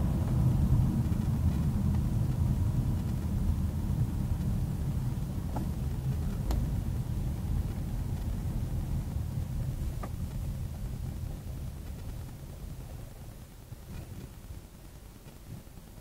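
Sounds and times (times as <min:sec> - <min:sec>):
car driving road rumble: 0:00.0 - 0:16.0.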